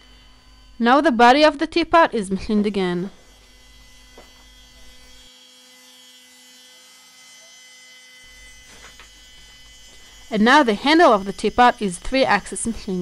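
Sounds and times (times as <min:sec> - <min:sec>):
faint steady hum: 0:00.0 - 0:04.4.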